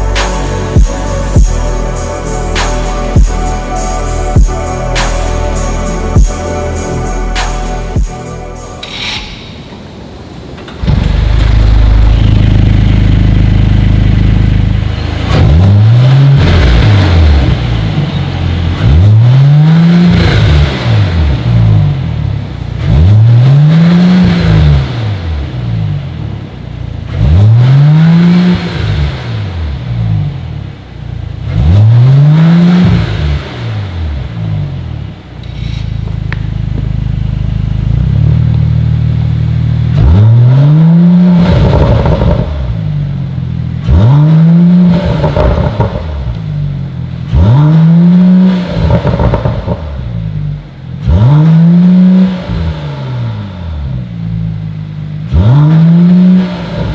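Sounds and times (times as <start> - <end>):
car engine idling: 0.0 - 19.4, 25.1 - 27.4, 29.2 - 32.0, 33.4 - 47.7, 48.3 - 51.4
car engine revving: 0.0 - 56.9.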